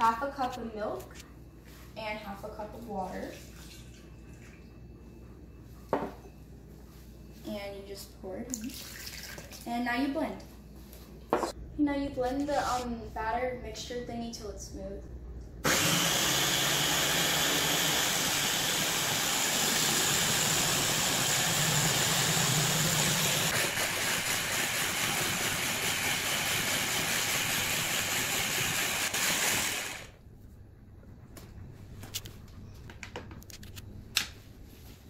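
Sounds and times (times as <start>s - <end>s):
blender motor running: 15.6s - 30.2s.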